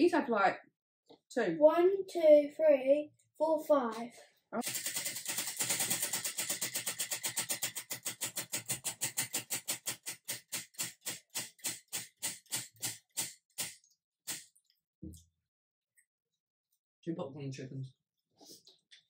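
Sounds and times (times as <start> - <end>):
prize wheel clicking: 4.6 - 13.7.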